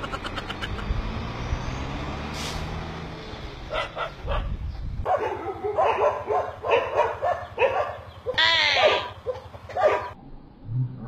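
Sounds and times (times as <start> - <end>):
dog barking: 3.7 - 10.2.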